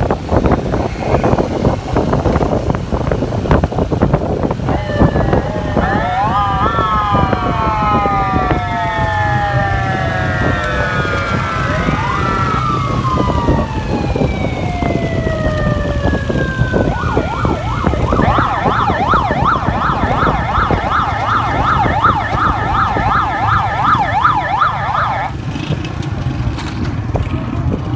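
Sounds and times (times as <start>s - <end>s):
motorcycle engines running: 0.0s - 27.9s
police siren wailing: 4.4s - 25.4s.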